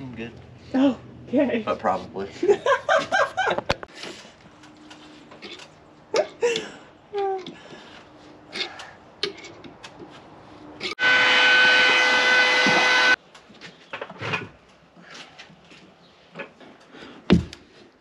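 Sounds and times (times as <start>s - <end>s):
handheld power tool running: 11.0s - 13.2s.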